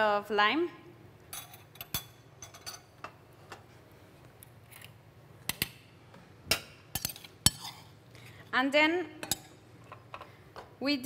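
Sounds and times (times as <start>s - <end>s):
metal kitchen utensils clinking: 1.3s - 3.0s.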